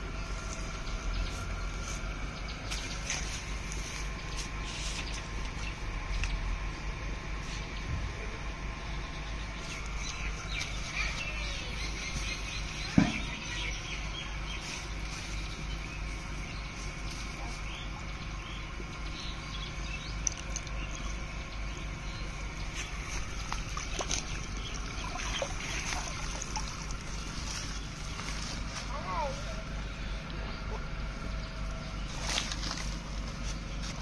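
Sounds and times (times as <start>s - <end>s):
water trickling and sloshing: 19.8s - 28.7s.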